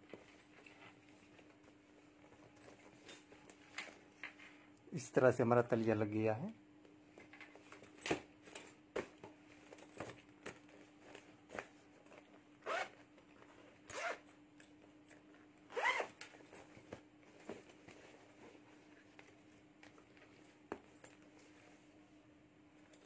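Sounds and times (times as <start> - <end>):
zipper being pulled: 12.6 - 13.0, 13.9 - 14.3, 15.7 - 16.2.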